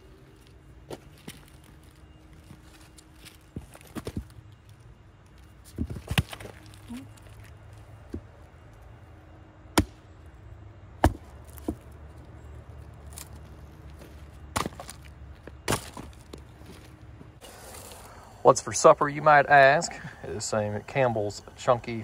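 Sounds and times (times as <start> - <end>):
axe chopping wood: 9.7 - 10.0, 11.0 - 11.9, 14.5 - 15.0, 15.6 - 16.1
split wood dropping on woodpile: 14.5 - 16.4.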